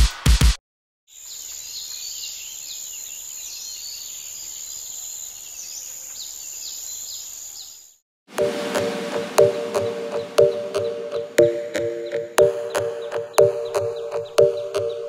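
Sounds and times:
loud music beats: 0:08.3 - 0:15.0.

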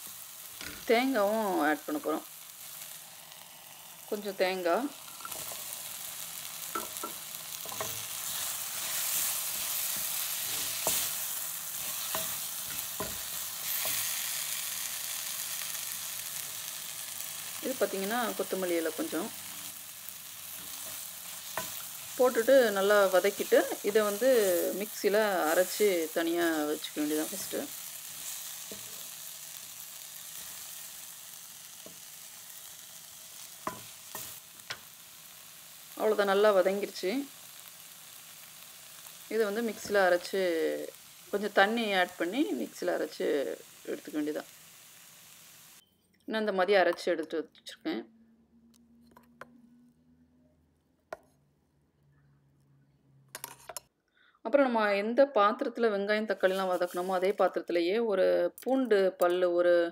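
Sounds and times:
vegetables sizzling in oil: 0:00.0 - 0:45.8, 0:55.7 - 0:58.0
spatula scraping and knocking pan: 0:11.8 - 0:14.1.

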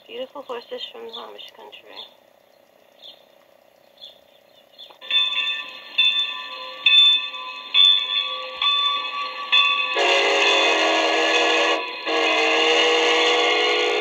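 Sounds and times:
locomotive bell ringing: 0:05.0 - 0:14.0
loud steam whistle: 0:09.9 - 0:14.0.

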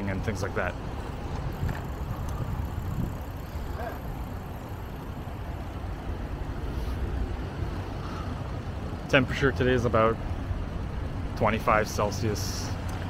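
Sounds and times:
road traffic: 0:00.0 - 0:13.0
wind rumble on microphone: 0:00.9 - 0:05.4.

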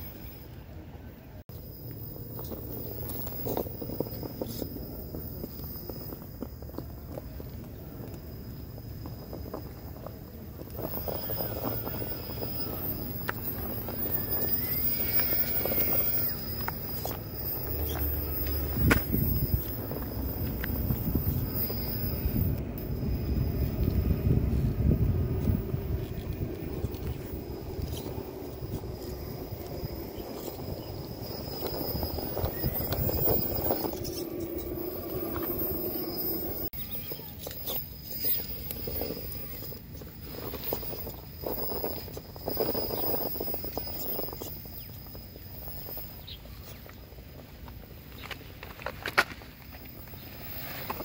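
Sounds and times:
electric motor whine: 0:01.6 - 0:36.7.

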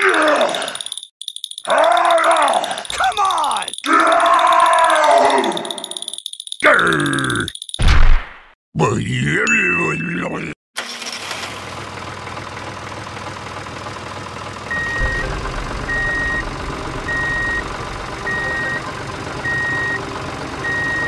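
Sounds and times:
model tractor engine running: 0:10.8 - 0:21.0
reversing alarm beeps: 0:14.7 - 0:21.0.

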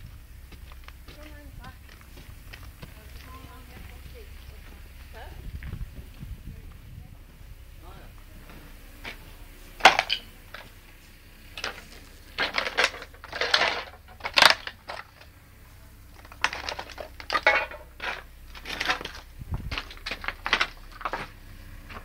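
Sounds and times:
footsteps crunching on rubble: 0:00.0 - 0:22.0
stones clinking and scraping: 0:11.5 - 0:15.3, 0:16.1 - 0:22.0.

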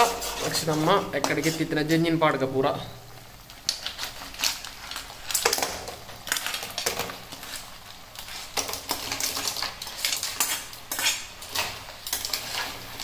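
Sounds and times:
metal spoon scraping a pan: 0:00.0 - 0:02.2, 0:06.3 - 0:13.0
food frying: 0:00.0 - 0:13.0.

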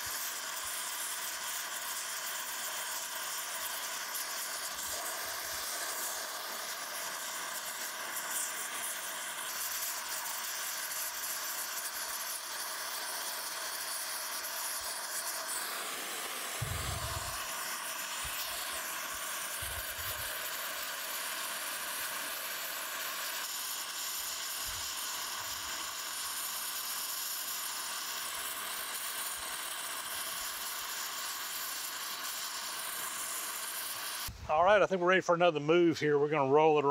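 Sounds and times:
torch flame hissing: 0:00.0 - 0:35.8
soft low thumps: 0:16.6 - 0:17.3.

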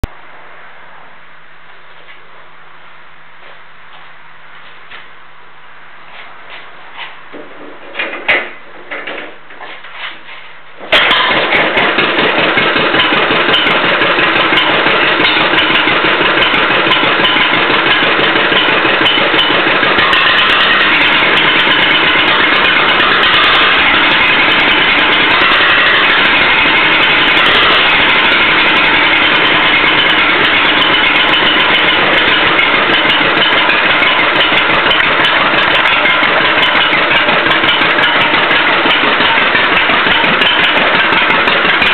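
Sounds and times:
unmuffled two-cylinder engine running: 0:11.0 - 0:41.9.

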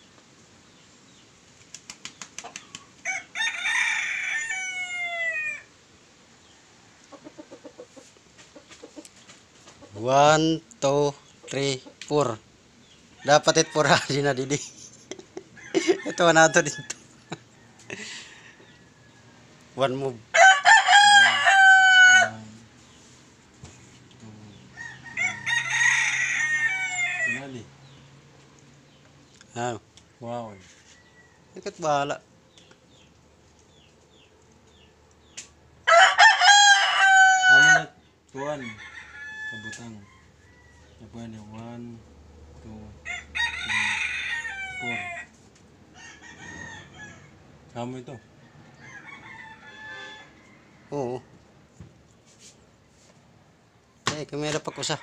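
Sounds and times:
quick run of clicks: 0:01.6 - 0:02.9
rooster crowing: 0:03.0 - 0:05.7, 0:15.6 - 0:19.6, 0:20.3 - 0:22.5, 0:24.7 - 0:27.7, 0:35.8 - 0:41.3, 0:43.0 - 0:47.5, 0:48.1 - 0:51.3, 0:54.6 - 0:55.0.

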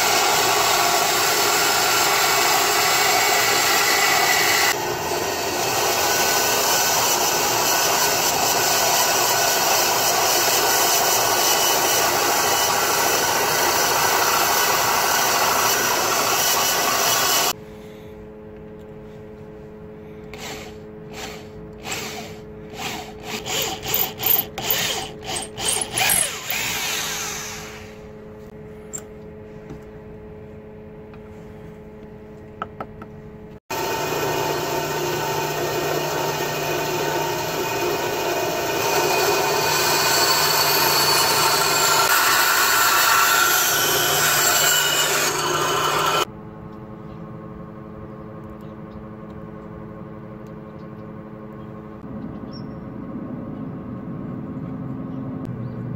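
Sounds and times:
electric drill boring wood: 0:00.0 - 0:17.6, 0:20.3 - 0:28.1, 0:33.7 - 0:46.3
power tool running: 0:00.0 - 0:17.6, 0:20.2 - 0:29.0, 0:33.7 - 0:46.3.

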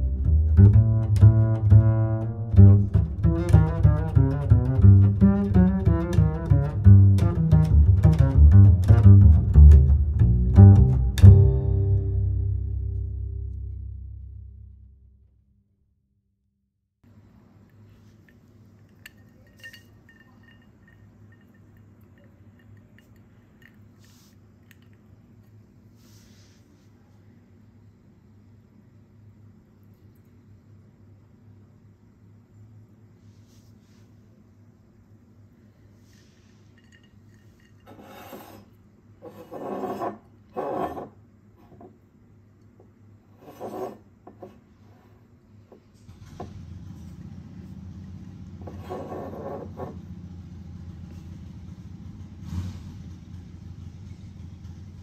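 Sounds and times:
ice cubes clinking in a glass: 0:18.9 - 0:23.6
glass bottle scraping on stone: 0:36.2 - 0:41.2, 0:43.4 - 0:44.6, 0:48.6 - 0:50.0.

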